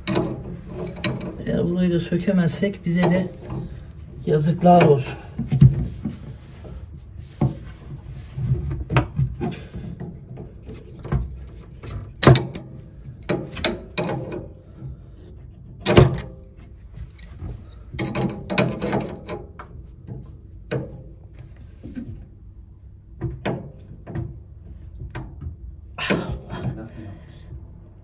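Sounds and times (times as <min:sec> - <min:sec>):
wrenches clinking on pipe fittings: 0:00.0 - 0:01.5.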